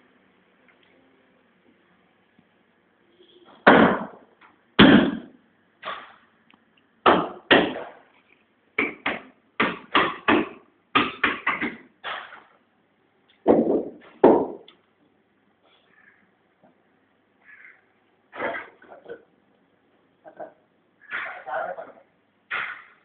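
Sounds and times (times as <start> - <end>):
sharp knocks: 3.6 - 4.2, 4.8 - 6.2, 7.0 - 8.0, 8.8 - 12.5, 13.4 - 14.7, 21.1 - 21.5, 22.5 - 23.0.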